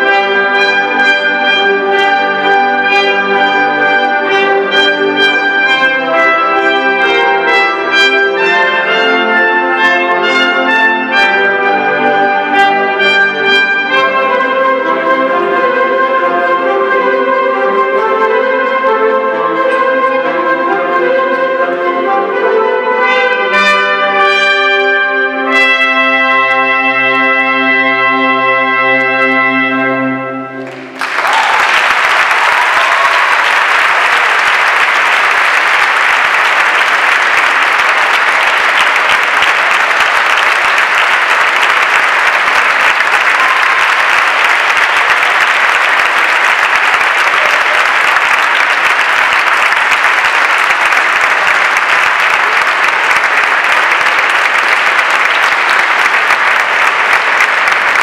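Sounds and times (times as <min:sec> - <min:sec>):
audience applause: 0:30.6 - 0:58.0.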